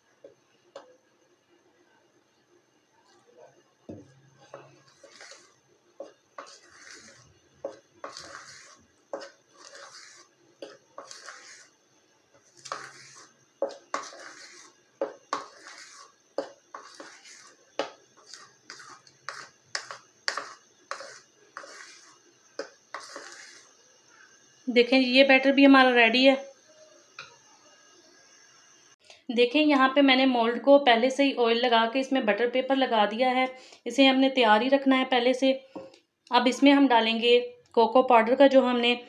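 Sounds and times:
metal spoon stirring batter in bowl: 4.0 - 23.8.

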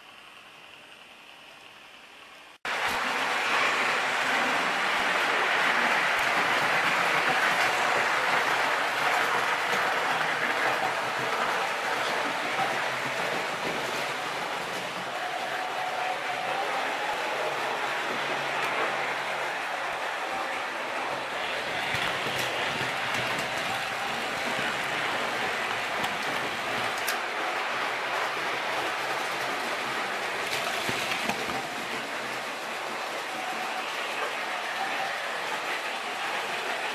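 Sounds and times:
model train rumbling whir: 0.0 - 36.9
model train wheels rattling on track: 20.2 - 36.9.

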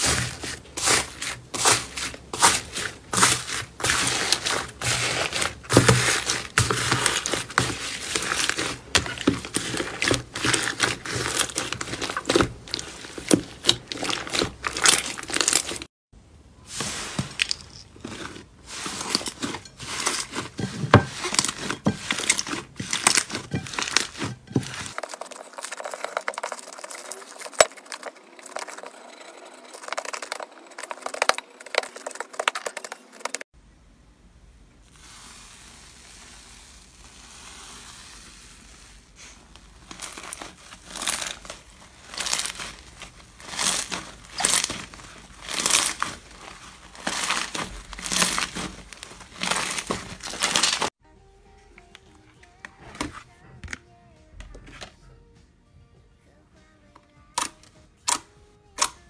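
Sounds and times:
slime crackling and squelching: 0.0 - 15.9, 16.7 - 28.9, 34.8 - 51.0.

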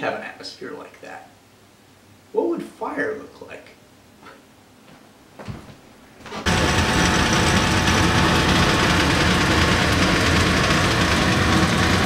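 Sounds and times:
electric vacuum pump running: 6.2 - 12.0.

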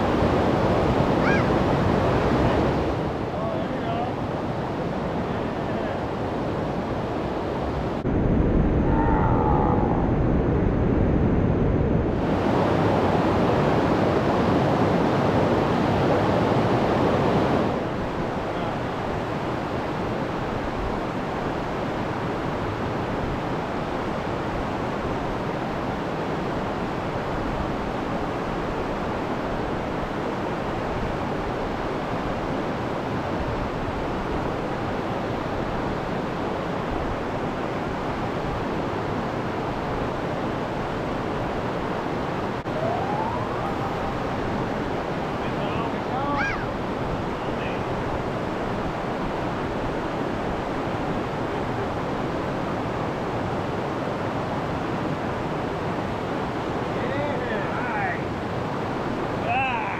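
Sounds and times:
water rushing over rocks: 34.2 - 59.9.

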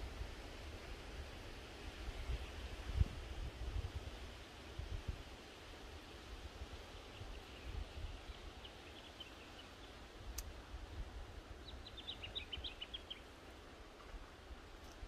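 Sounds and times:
wind rumble on microphone: 0.0 - 13.2
small birds twittering: 7.0 - 13.6.

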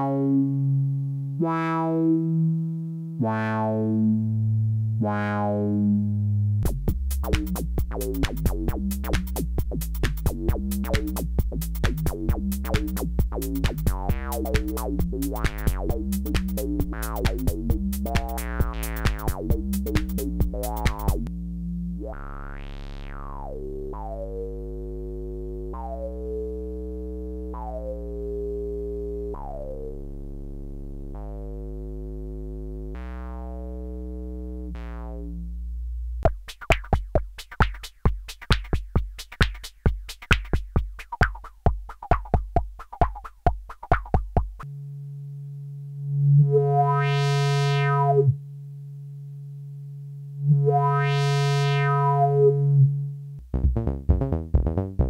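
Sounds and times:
low buzzy synth drone: 0.0 - 36.3, 44.6 - 55.0
synthesizer bass line: 0.0 - 48.5, 49.4 - 55.0
clicky percussive pulses: 6.6 - 21.4, 36.2 - 44.8.

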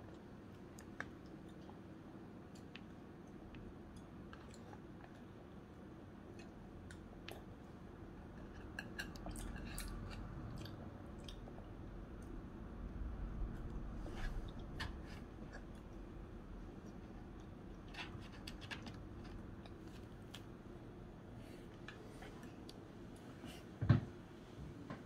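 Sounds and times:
child chewing: 8.3 - 11.6.

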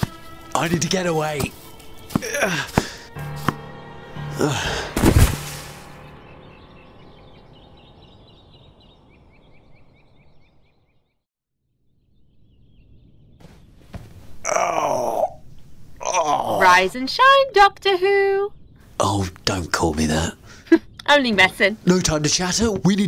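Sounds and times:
faint bird chirps: 5.9 - 14.4.

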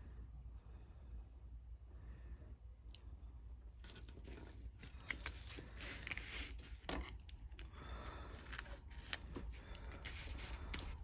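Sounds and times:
tape clicks rustles and scrapes: 3.8 - 11.0.

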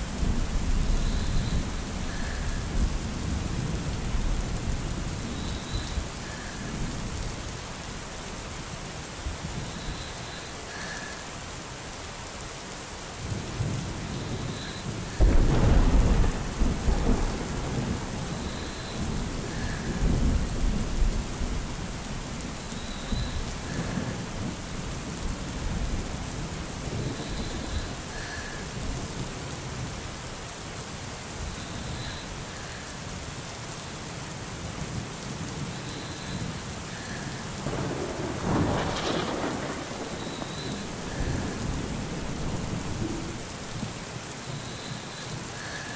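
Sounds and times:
steady rain: 0.0 - 45.9
thunder rumbling: 13.5 - 29.9, 36.5 - 44.0.

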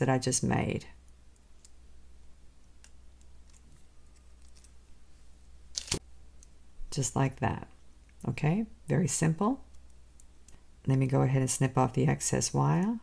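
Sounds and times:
pliers and wire clicking: 1.0 - 1.8.

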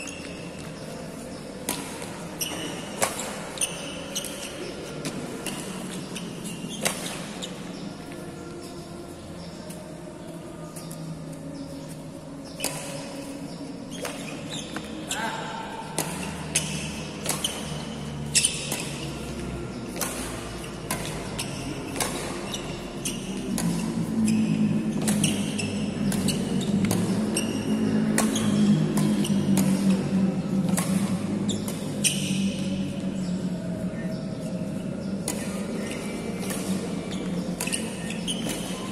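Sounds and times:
rackets striking shuttlecocks: 0.0 - 7.9, 11.8 - 33.4, 34.2 - 38.9
low hum: 15.8 - 38.9.

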